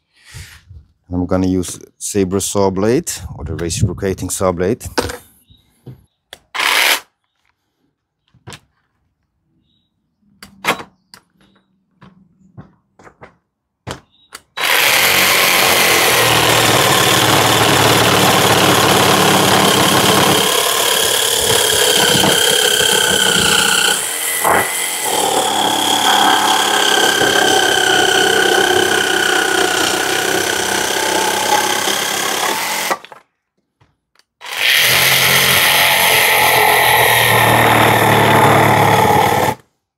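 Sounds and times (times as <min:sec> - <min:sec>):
power tool motor whining: 0:14.6 - 0:33.1, 0:34.4 - 0:39.6.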